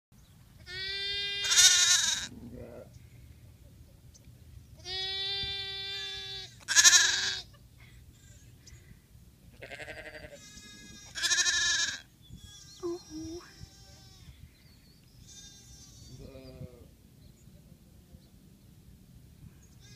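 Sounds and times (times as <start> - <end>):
lamb bleating: 0.6 - 2.9, 4.8 - 7.5, 9.6 - 14.4, 15.2 - 16.8.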